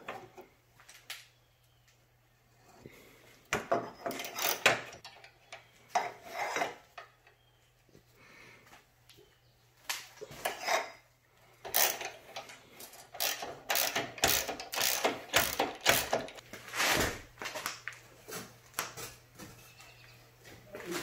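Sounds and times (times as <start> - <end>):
hand ratchet clicking: 11.6 - 12.5, 13.1 - 16.4.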